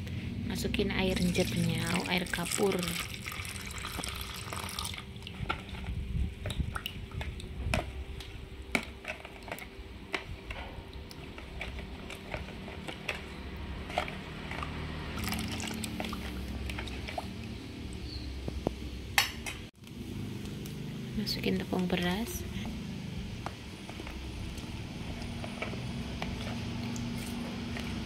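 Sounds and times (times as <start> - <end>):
liquid pouring into plastic bowl: 1.2 - 5.8, 15.2 - 17.3
metal spoon stirring liquid: 11.1 - 17.7.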